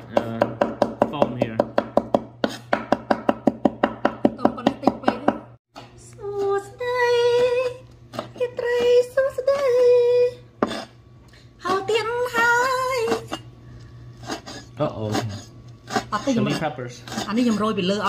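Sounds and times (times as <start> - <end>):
cleaver chopping on wooden board: 0.1 - 5.3.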